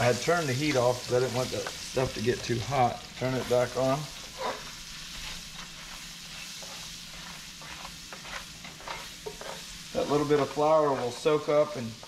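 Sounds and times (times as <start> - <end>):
onions sizzling in a frying pan: 0.0 - 12.0
spoon scraping and stirring: 4.2 - 10.6.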